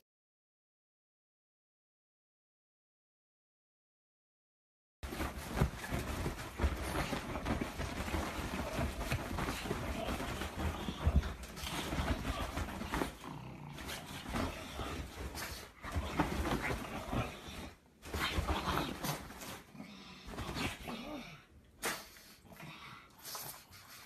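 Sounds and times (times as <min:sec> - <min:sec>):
bedding rustling and thumping: 0:05.0 - 0:20.9.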